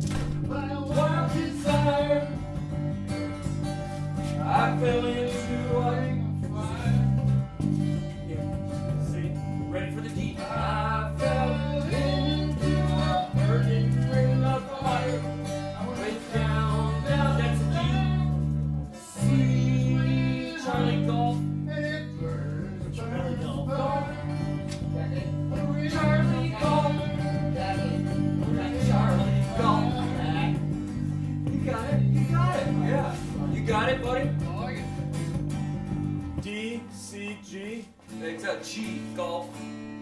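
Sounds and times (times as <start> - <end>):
deep bass notes: 0.0 - 36.6
strummed acoustic guitars: 0.0 - 40.0.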